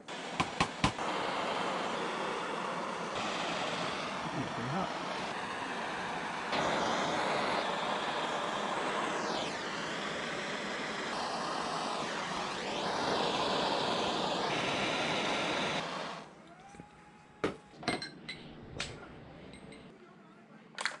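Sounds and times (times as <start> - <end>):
gas torch hissing: 0.0 - 16.4.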